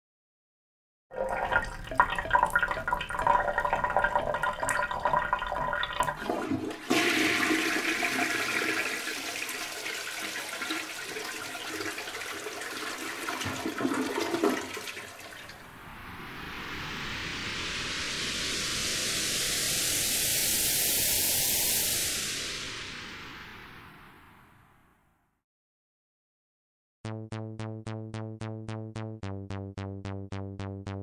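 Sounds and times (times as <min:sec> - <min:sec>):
toilet flushing: 0:01.2 - 0:15.6.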